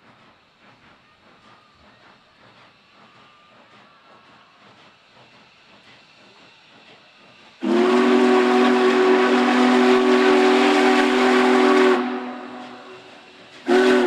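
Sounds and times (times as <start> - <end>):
steam hissing: 0.0 - 14.0
steam whistle blast: 7.6 - 14.0.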